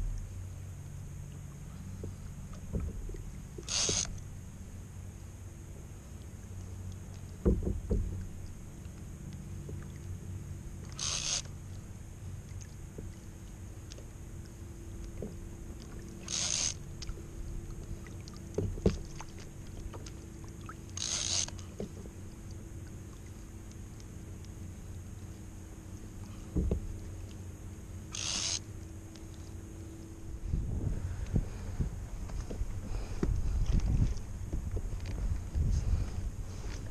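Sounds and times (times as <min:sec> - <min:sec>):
sea noise: 0:00.0 - 0:36.9
water slapping against kayak: 0:07.2 - 0:29.4, 0:30.2 - 0:36.9
knocks on kayak: 0:07.4 - 0:08.2, 0:26.5 - 0:26.9.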